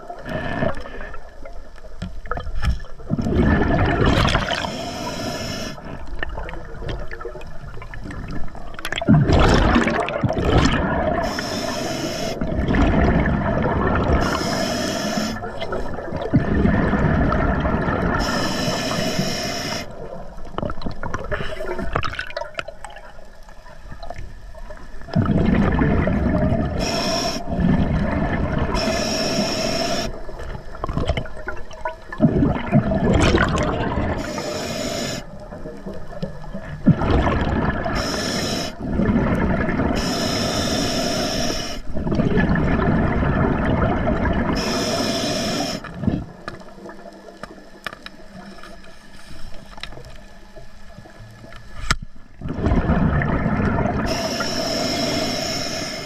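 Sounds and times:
bubbling exhalations underwater: 2.3s - 5.2s, 5.8s - 11.4s, 12.4s - 14.5s, 15.2s - 18.4s, 25.1s - 29.2s, 30.0s - 34.5s, 35.3s - 40.1s, 41.9s - 44.9s, 52.4s - 54.4s
hissing regulator inhalations: 4.4s - 6.0s, 11.2s - 12.5s, 14.2s - 15.6s, 18.1s - 20.0s, 26.7s - 27.7s, 28.7s - 30.3s, 34.2s - 35.4s, 37.9s - 38.8s, 39.9s - 41.9s, 44.6s - 46.0s, 54.0s - 56.0s.

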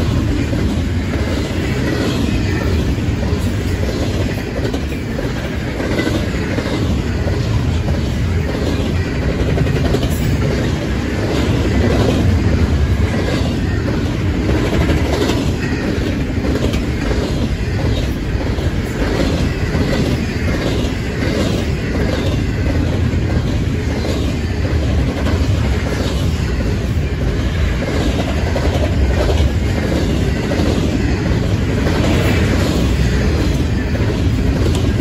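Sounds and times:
freight train wheels rumbling: 0.0s - 35.0s
wheels clacking over rail joints: 0.0s - 35.0s.

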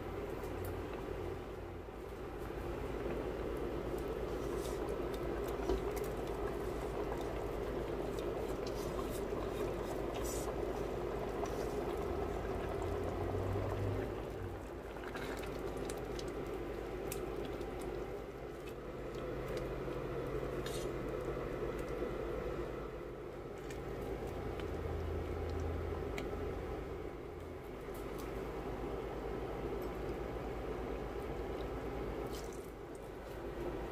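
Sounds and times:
soup bubbling: 1.8s - 27.6s.

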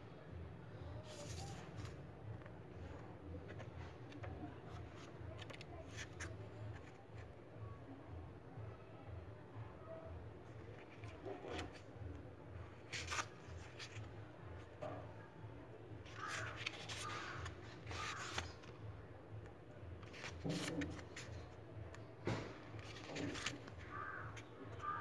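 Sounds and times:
book pages rustling: 1.1s - 7.3s, 10.6s - 12.0s, 12.6s - 14.8s, 16.0s - 18.9s, 20.0s - 25.0s.

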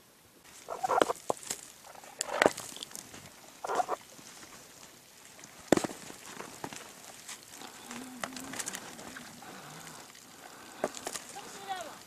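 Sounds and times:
low warbling animal call: 3.6s - 4.0s, 7.6s - 10.8s.

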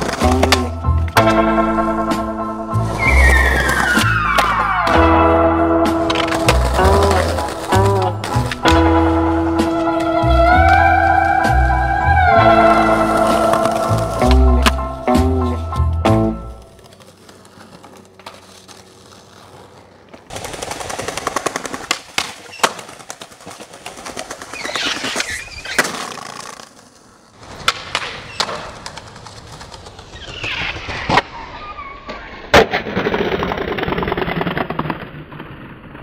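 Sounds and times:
skateboard popping and landing: 0.0s - 1.5s, 6.0s - 10.9s, 12.9s - 31.3s, 32.1s - 36.0s
skateboard wheels rolling on pavement: 0.0s - 36.0s
skateboard scrapes: 2.7s - 5.2s, 5.9s - 15.6s, 16.4s - 36.0s.

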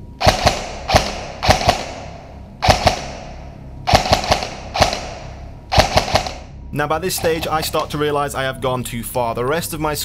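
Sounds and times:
airsoft rifle shots: 0.2s - 6.6s.

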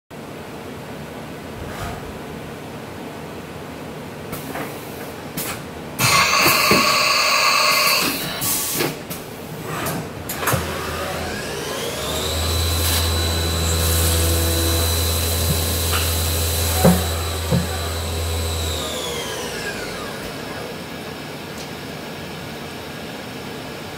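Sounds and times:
tool changer hiss: 6.0s - 9.0s, 9.7s - 20.7s
low machine hum: 10.6s - 21.5s
spindle whine: 10.8s - 20.8s.

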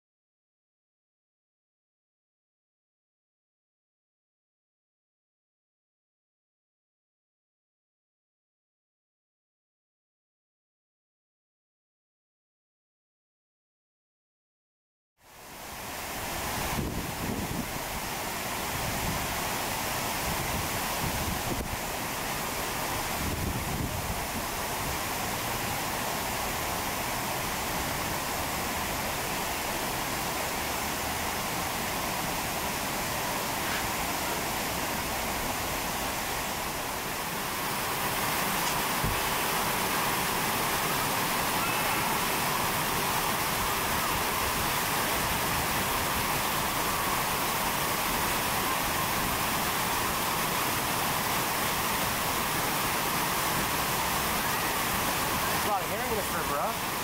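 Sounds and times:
flowing water rushing: 15.2s - 57.0s.

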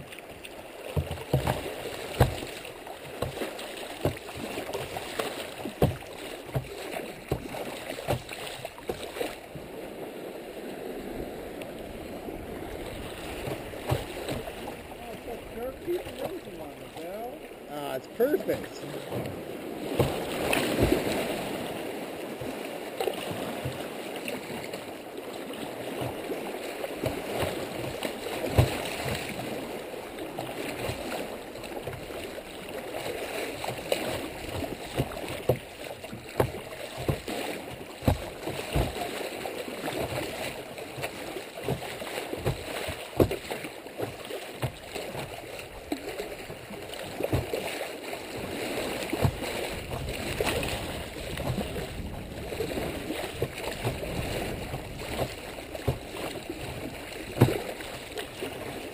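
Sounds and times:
creek water rushing: 0.0s - 58.9s
water slapping against hull: 0.0s - 58.9s.

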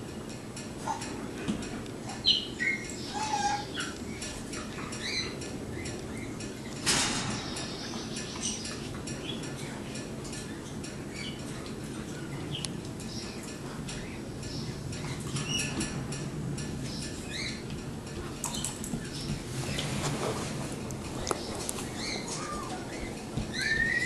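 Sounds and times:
wire cage rattling: 0.3s - 12.3s
high squeaks and chirps: 21.4s - 24.0s.

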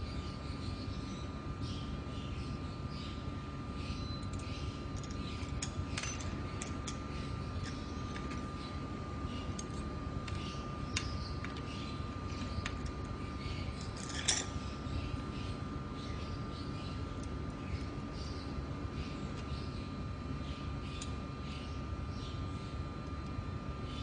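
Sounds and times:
faint steady whine: 0.0s - 24.0s
steady low hum: 0.0s - 24.0s
metallic clicks and clinks: 13.8s - 14.6s.

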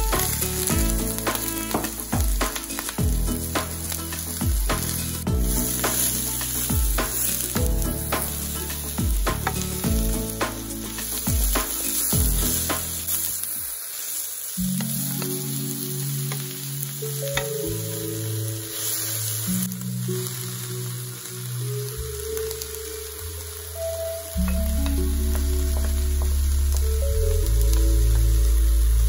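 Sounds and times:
background music with a beat: 0.0s - 13.3s, 23.8s - 29.0s
vegetables sizzling in a wok: 0.0s - 29.0s.

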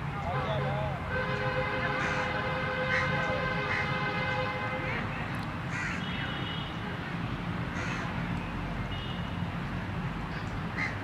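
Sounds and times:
crow cawing: 2.0s - 2.3s, 2.9s - 3.9s, 5.7s - 6.1s, 7.7s - 8.1s, 10.8s - 11.0s.

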